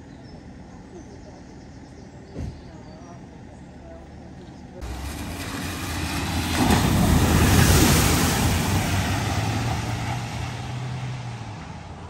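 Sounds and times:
van engine hum: 0.0s - 12.0s
water spraying: 4.8s - 11.5s.

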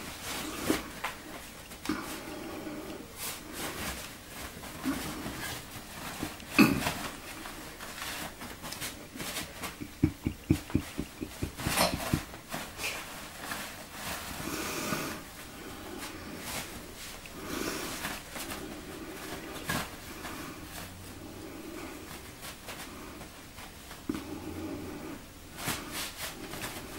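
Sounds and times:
soft low thuds: 9.8s - 12.2s.

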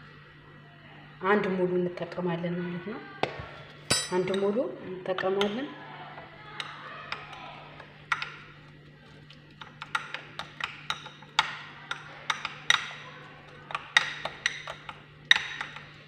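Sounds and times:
metal spoon clinking against glass bowl: 3.9s - 4.5s, 9.6s - 16.0s.

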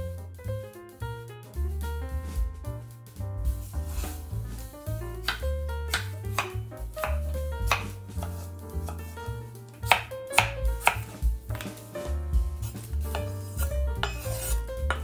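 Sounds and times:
background music with bass: 0.0s - 15.0s
knife cutting on wooden board: 5.2s - 9.2s, 9.9s - 11.8s, 12.6s - 15.0s.

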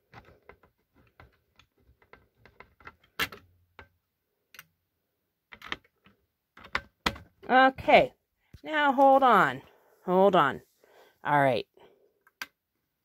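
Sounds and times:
hard plastic clicks and taps: 5.5s - 7.3s.

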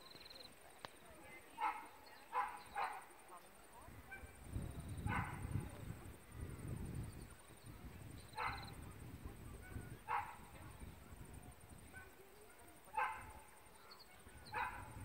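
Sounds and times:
dog barking faintly: 1.5s - 6.2s, 8.4s - 15.0s.

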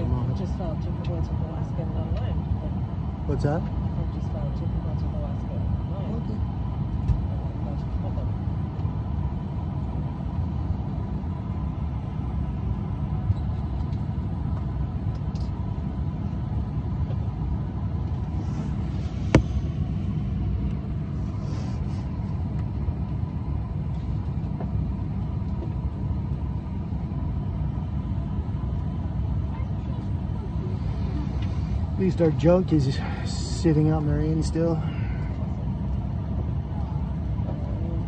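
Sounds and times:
cabin air conditioning rumble: 0.0s - 38.0s
faint steady whine: 0.0s - 38.0s.

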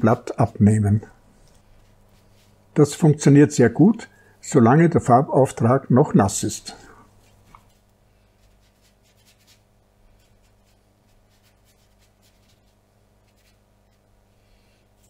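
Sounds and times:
low steady hum: 0.0s - 15.0s
brush swishing on wet paper: 1.7s - 2.6s, 7.2s - 14.1s.

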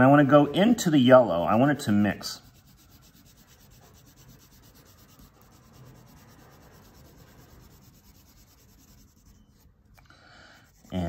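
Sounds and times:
crayon scribbling on paper: 2.0s - 9.8s.

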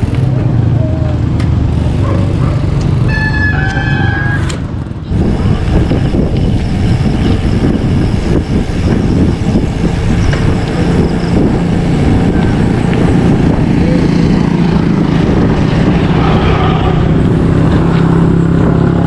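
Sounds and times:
wind buffeting microphone: 4.6s - 19.0s.

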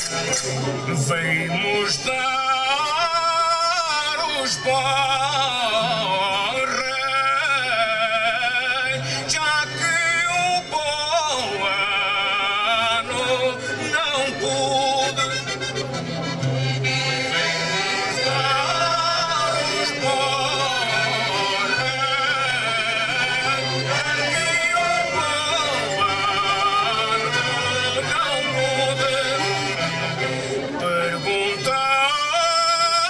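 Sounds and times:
guitar accompaniment: 0.0s - 33.0s
man singing with vibrato: 0.0s - 33.0s.

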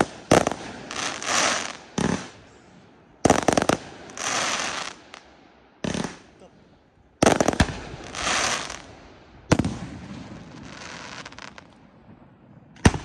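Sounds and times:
fireworks hissing crackle: 0.0s - 2.7s, 3.3s - 5.2s, 7.2s - 8.9s, 10.2s - 11.8s
fireworks bangs: 0.0s - 5.2s, 5.8s - 6.4s, 7.2s - 13.0s.

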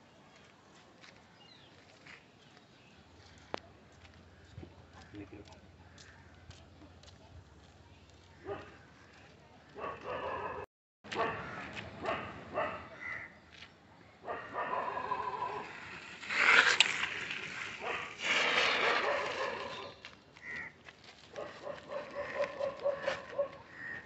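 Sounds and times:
dog barking: 8.4s - 8.8s, 9.8s - 12.9s, 14.2s - 15.6s, 18.8s - 19.9s, 21.4s - 23.6s.

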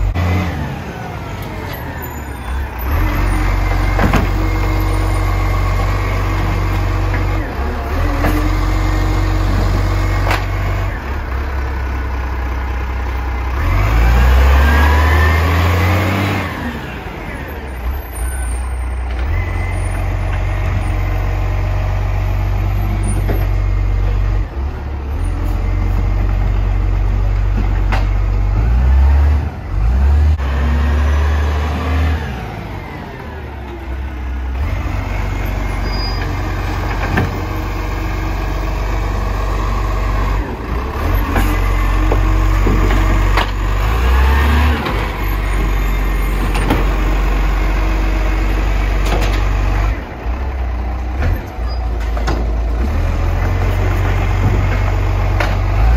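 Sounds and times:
garbage truck engine running: 0.0s - 55.9s.

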